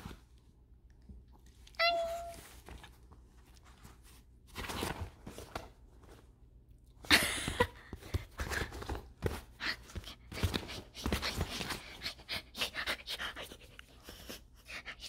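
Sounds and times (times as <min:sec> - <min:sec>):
bedding rustling: 0:02.2 - 0:06.5
dog breathing quickly: 0:09.6 - 0:15.0.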